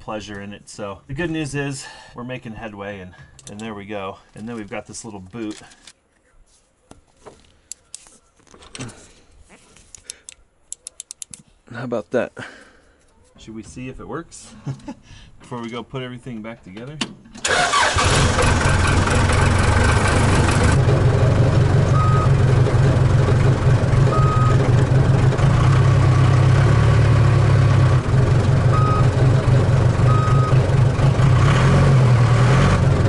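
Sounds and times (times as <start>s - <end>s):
diesel engine running: 17.5s - 33.0s.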